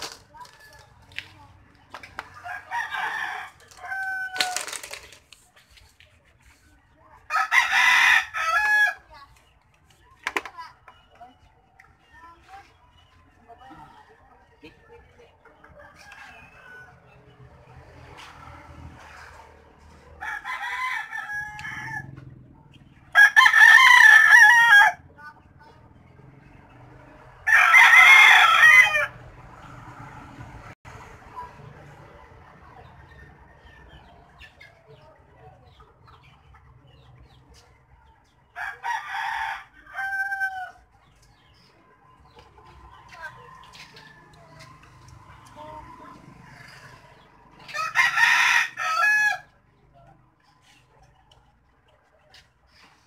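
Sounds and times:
rooster crowing: 2.4s - 4.7s, 20.2s - 22.2s, 23.1s - 25.0s, 27.4s - 29.2s, 47.7s - 49.5s.

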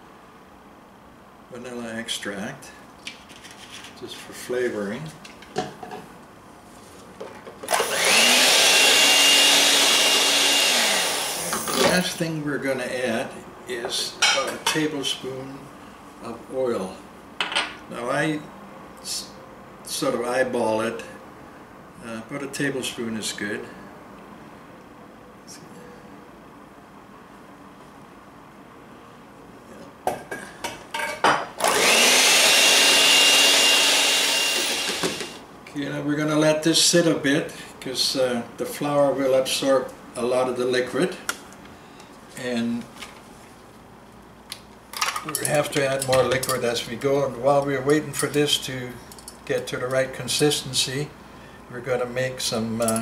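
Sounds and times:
electric hand mixer running: 7.7s - 11.9s, 31.6s - 35.4s.

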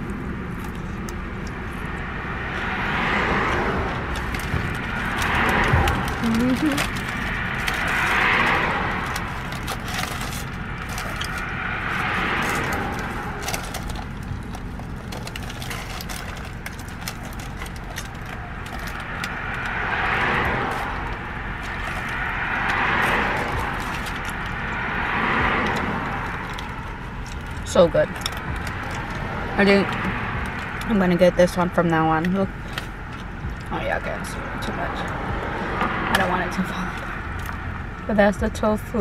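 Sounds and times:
person chewing crusty bread: 0.0s - 30.9s
traffic passing: 0.0s - 39.0s.

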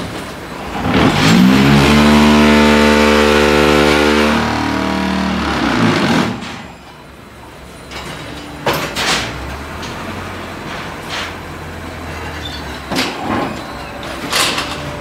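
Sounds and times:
block machine humming: 0.7s - 6.9s.

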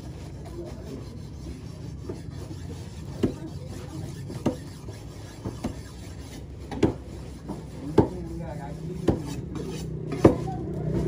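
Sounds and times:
steady background hum: 0.0s - 11.0s
cleaver chopping on wooden block: 6.7s - 8.2s, 9.0s - 9.4s.

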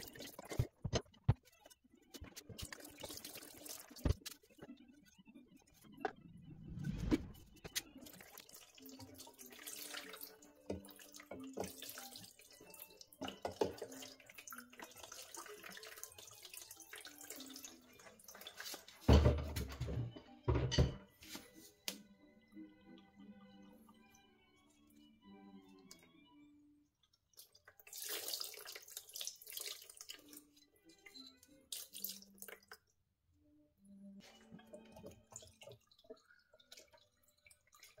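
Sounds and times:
fluid splashing and dripping: 27.3s - 30.4s, 31.7s - 32.9s, 34.8s - 38.0s.

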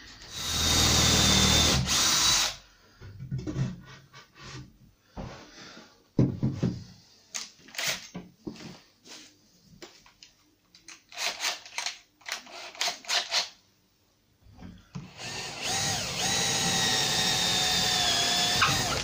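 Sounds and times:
cordless drill driving into wood: 15.1s - 19.0s.

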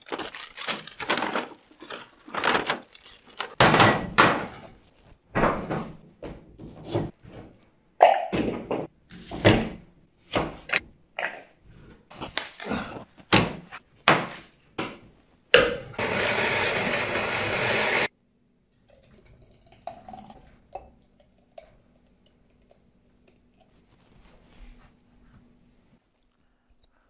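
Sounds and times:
electric blender running: 16.0s - 18.1s.

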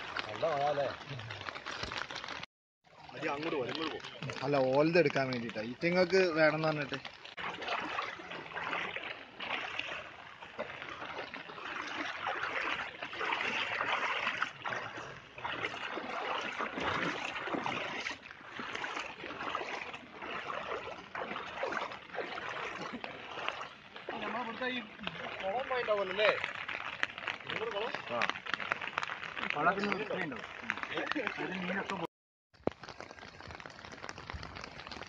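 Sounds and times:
rushing flood current: 0.0s - 32.1s
floodwater sloshing around legs: 0.0s - 35.0s.

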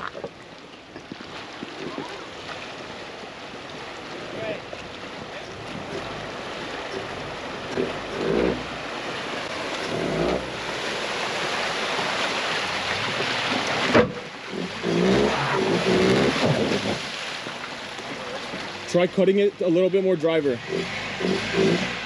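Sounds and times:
water rushing and splashing: 0.0s - 22.0s
engine revving: 5.8s - 8.8s, 9.8s - 10.7s, 14.5s - 17.0s, 20.5s - 22.0s.

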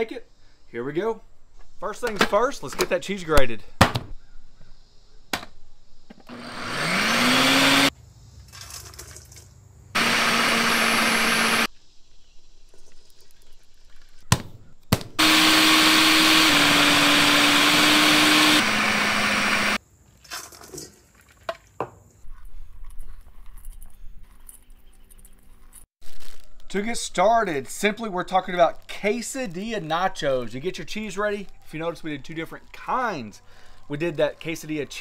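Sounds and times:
food processor motor whining: 6.2s - 7.9s, 10.0s - 11.7s, 15.2s - 19.8s.

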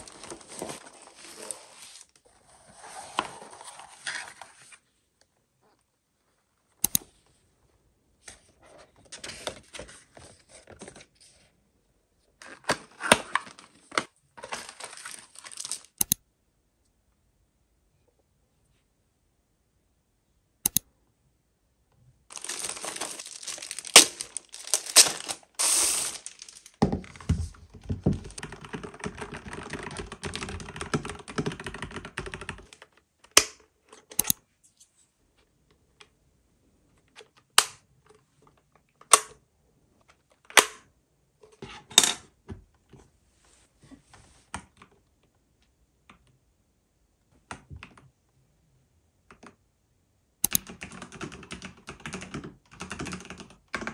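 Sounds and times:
packaging crinkling: 0.0s - 1.8s, 14.4s - 16.0s, 22.3s - 27.2s
sharp clicks and taps: 20.7s - 20.9s.

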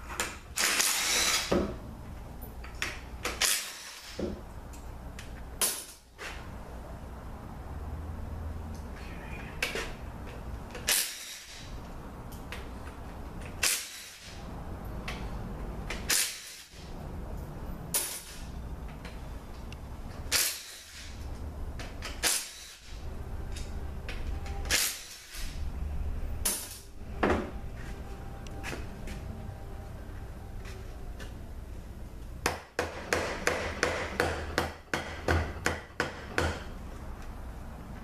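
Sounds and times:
sharp knocks on metal: 32.4s - 36.7s.

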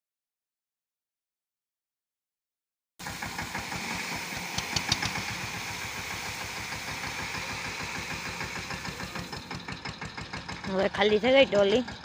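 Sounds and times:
tractor diesel engine throbbing: 3.0s - 12.0s.

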